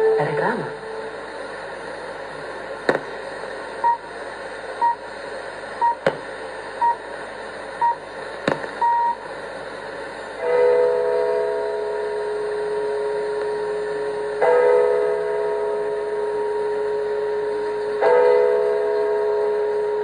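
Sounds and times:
radio broadcast through speaker: 0:00.0 - 0:01.0
radio hiss: 0:00.0 - 0:10.4
static crackles: 0:01.2 - 0:09.7
station chimes: 0:03.8 - 0:04.1, 0:04.8 - 0:05.1, 0:05.8 - 0:07.0, 0:07.8 - 0:08.1, 0:08.7 - 0:09.3
time signal beeps: 0:03.8 - 0:04.1, 0:04.8 - 0:05.0, 0:05.8 - 0:06.0, 0:06.8 - 0:07.0, 0:07.8 - 0:08.0, 0:08.8 - 0:09.2.

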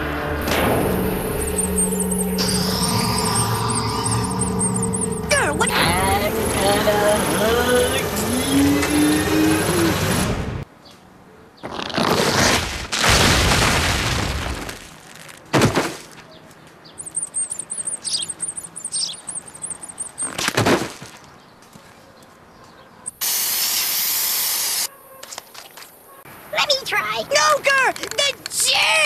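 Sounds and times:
warbling high chirp: 0:01.2 - 0:05.9, 0:17.0 - 0:20.3
aerosol spray can hissing: 0:23.2 - 0:24.9.

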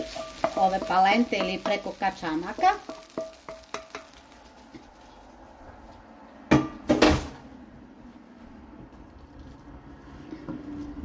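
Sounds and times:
wooden spatula scraping frying pan: 0:00.0 - 0:06.0
pan knocking against pot: 0:02.8 - 0:04.1.

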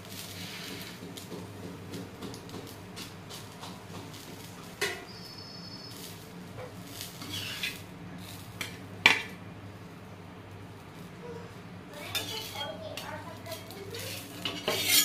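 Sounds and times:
spatula clinking on griddle: 0:04.8 - 0:05.1, 0:06.6 - 0:07.8, 0:12.1 - 0:12.7, 0:13.5 - 0:15.0.

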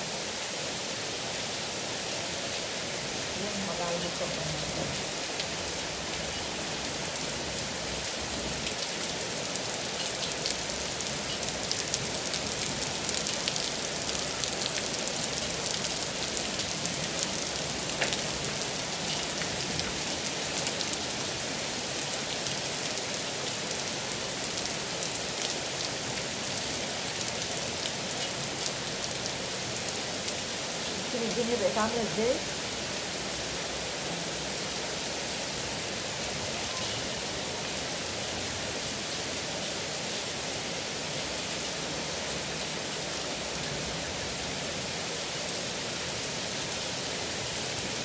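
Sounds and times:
heavy rain pouring: 0:00.0 - 0:48.0
raindrops ticking on surfaces: 0:02.8 - 0:34.8.

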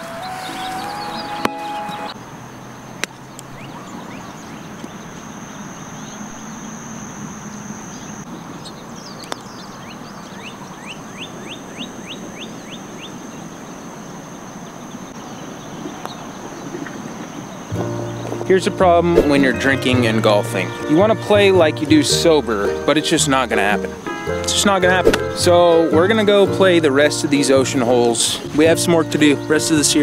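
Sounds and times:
bird chirping: 0:00.0 - 0:21.0
insect drone: 0:00.0 - 0:25.7.

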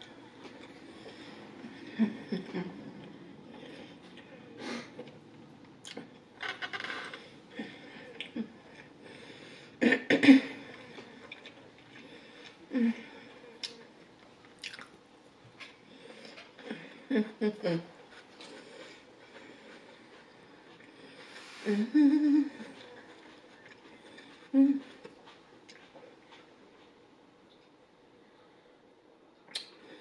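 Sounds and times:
chewing and mouth noises: 0:13.6 - 0:15.0, 0:22.6 - 0:27.8.

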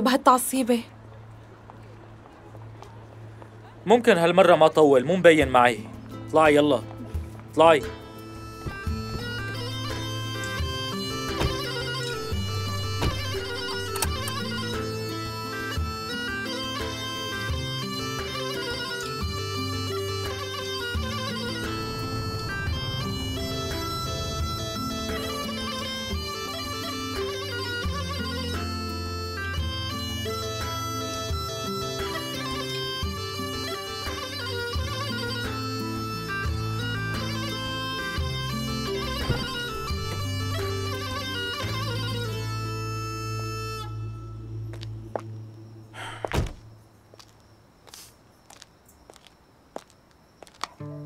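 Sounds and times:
reedy bagpipe-like melody with drone: 0:08.0 - 0:45.2
low drone: 0:08.3 - 0:16.4, 0:20.6 - 0:27.6.

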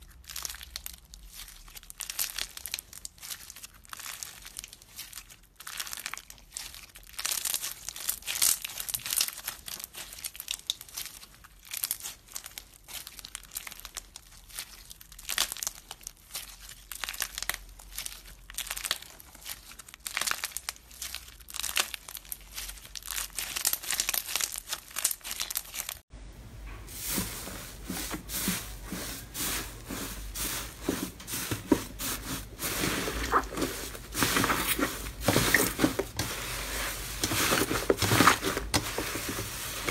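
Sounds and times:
slime squishing: 0:00.0 - 0:39.9
beaded slime crackling and popping: 0:00.1 - 0:26.1.

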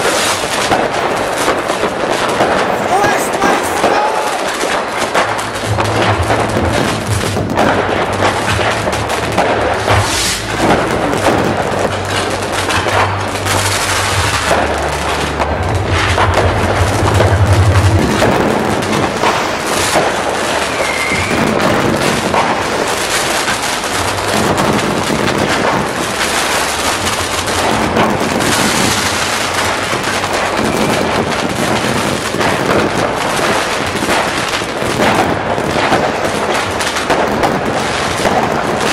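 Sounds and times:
fireworks bangs and crackling: 0:00.0 - 0:38.9.

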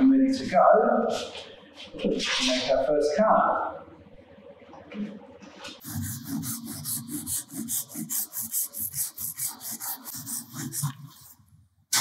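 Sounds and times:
hand saw cutting: 0:05.8 - 0:11.4.

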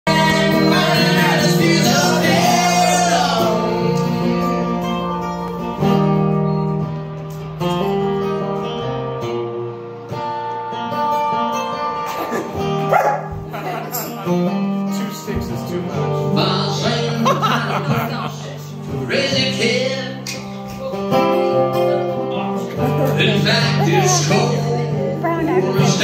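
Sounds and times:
man singing: 0:00.0 - 0:05.2, 0:14.5 - 0:26.0
acoustic guitar strumming: 0:00.1 - 0:26.0.

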